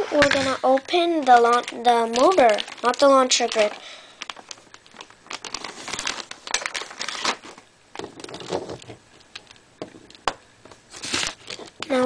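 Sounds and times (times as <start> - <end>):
plastic bag rustling: 0.0 - 12.0
plastic pieces clicking and rattling: 0.2 - 7.3, 8.0 - 10.4.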